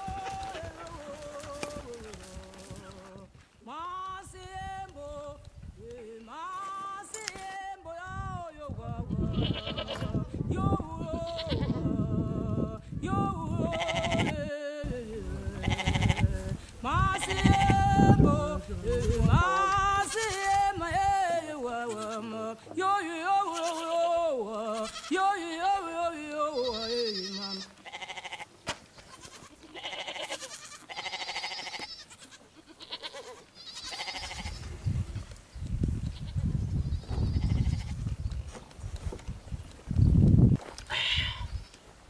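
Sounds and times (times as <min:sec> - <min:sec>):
goats bleating: 0:00.0 - 0:03.3, 0:09.2 - 0:10.2, 0:11.2 - 0:12.0, 0:13.7 - 0:14.4, 0:15.5 - 0:16.5, 0:17.1 - 0:18.1, 0:18.8 - 0:20.7, 0:21.8 - 0:22.7, 0:23.4 - 0:25.4, 0:26.5 - 0:34.9, 0:36.9 - 0:38.0
short scuffing noises: 0:28.6 - 0:29.5.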